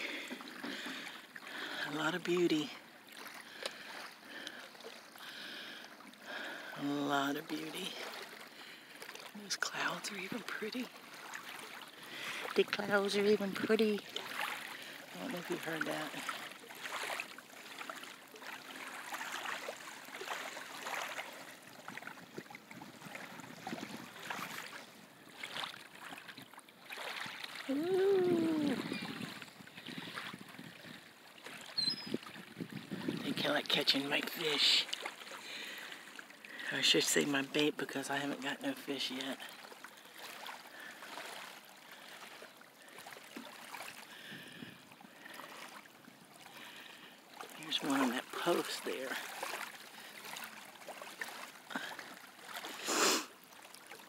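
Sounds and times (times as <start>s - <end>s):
small waves lapping shoreline: 0.0s - 54.0s
steady outdoor hiss: 52.6s - 53.5s.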